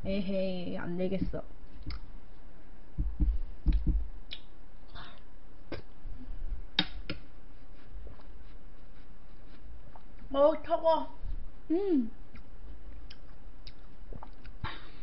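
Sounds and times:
low thumps: 2.9 - 4.2.

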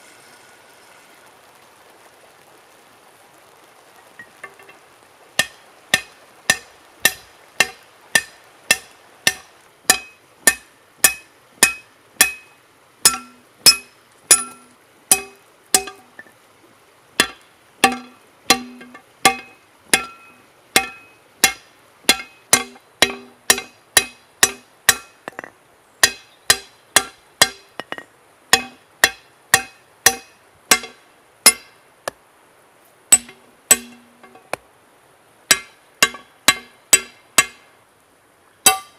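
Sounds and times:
hammer striking hot metal: 5.4 - 16.1, 17.2 - 31.7, 33.1 - 34.5, 35.5 - 37.6, 38.6 - 38.9.

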